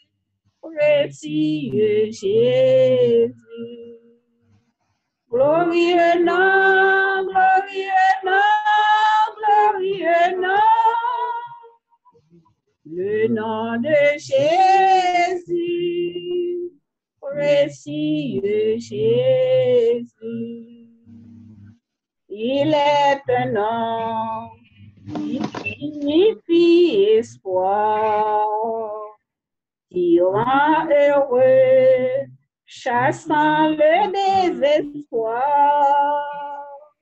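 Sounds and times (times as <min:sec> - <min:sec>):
woman singing a hymn: 0:00.7 - 0:04.0, 0:05.3 - 0:11.7, 0:12.9 - 0:20.9, 0:22.3 - 0:24.6, 0:25.2 - 0:29.2, 0:30.0 - 0:36.9.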